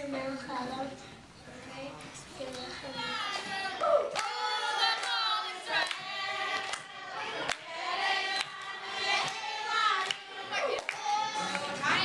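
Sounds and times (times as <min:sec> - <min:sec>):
children singing: 0:02.6 - 0:12.0
hand claps: 0:04.1 - 0:07.6, 0:08.3 - 0:12.0.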